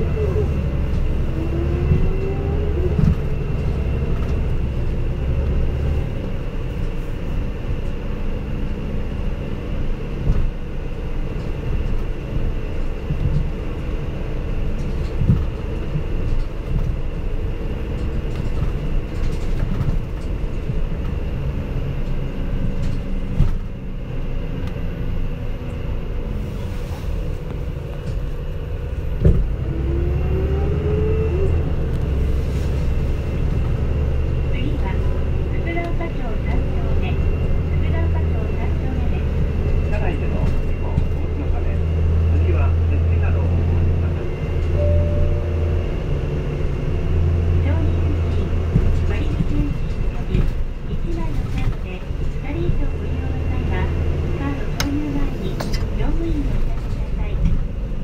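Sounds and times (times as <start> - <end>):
bus engine drone: 0.0 - 58.0
road noise: 0.0 - 58.0
rising whine: 44.1 - 47.5.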